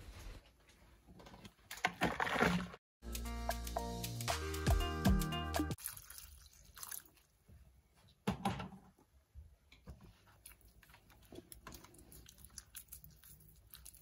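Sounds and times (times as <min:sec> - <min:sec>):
hand squeezing dough in water: 0:05.8 - 0:07.5.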